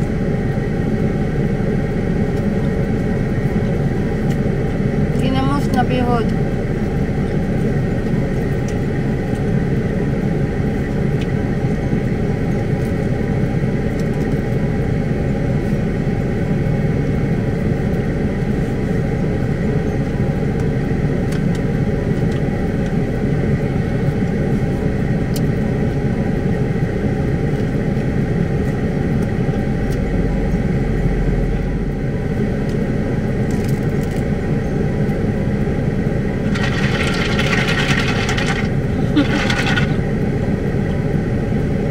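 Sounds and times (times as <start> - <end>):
vehicle engine idling: 35.3 - 41.2.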